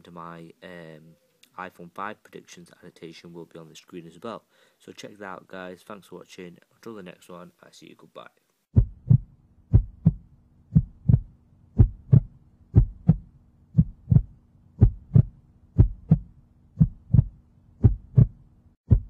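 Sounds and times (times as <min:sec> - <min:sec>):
heartbeat thumps: 0:08.8 - 0:19.0.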